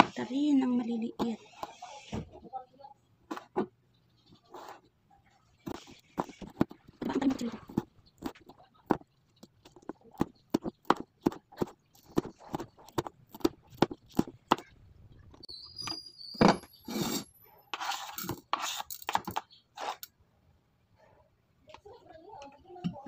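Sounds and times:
knife chopping on plastic board: 5.7s - 14.7s.

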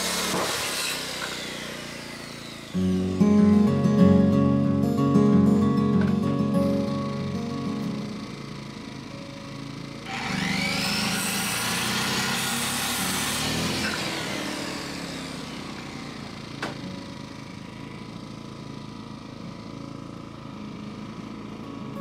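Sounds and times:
circular saw cutting wood: 0.0s - 3.2s, 7.8s - 17.9s.

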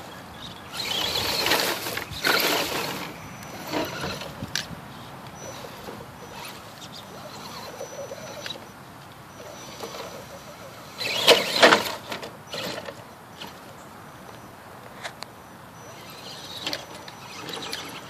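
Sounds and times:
electric motor whine: 0.0s - 4.6s, 5.4s - 8.7s, 9.3s - 13.7s, 15.8s - 18.0s.

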